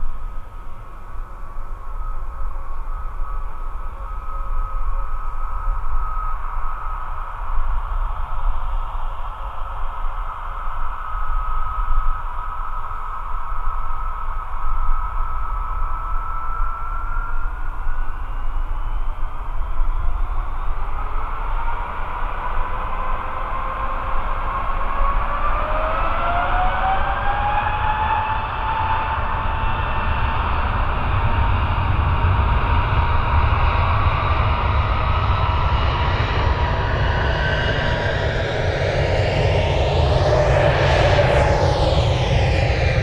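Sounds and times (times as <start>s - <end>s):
jet engines whining and rumbling: 0.0s - 43.0s
low rumble: 34.5s - 43.0s.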